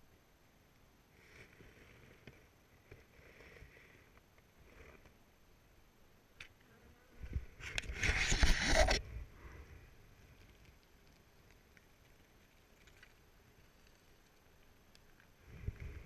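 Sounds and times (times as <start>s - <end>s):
rustling and scraping: 7.2s - 9.1s.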